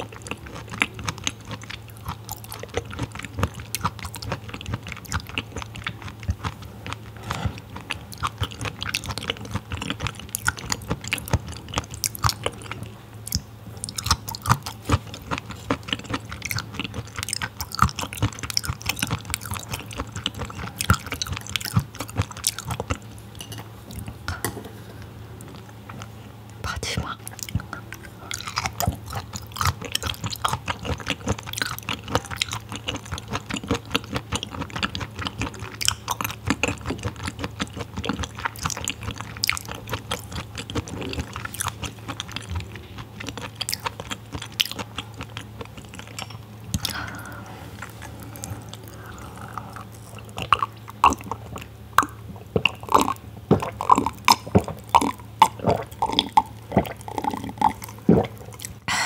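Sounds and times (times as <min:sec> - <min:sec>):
wet chewing mouth sounds: 0:00.0 - 0:59.0
gulping drink: 0:25.4 - 0:58.9.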